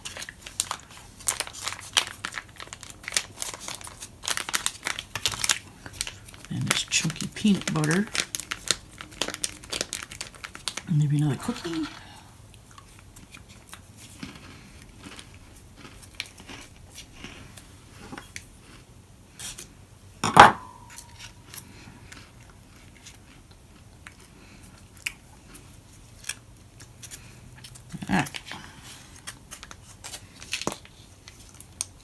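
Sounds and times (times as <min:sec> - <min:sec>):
plastic pouch crinkling: 0:00.0 - 0:11.9.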